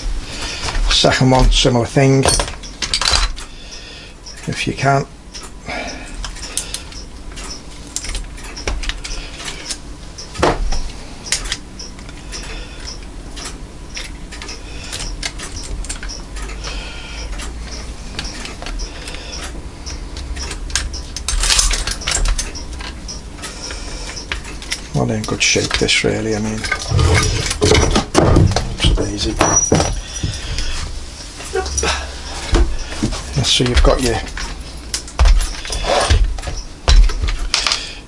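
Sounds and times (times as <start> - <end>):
metallic clicks and scraping: 6.2 - 10.3, 11.2 - 28.2.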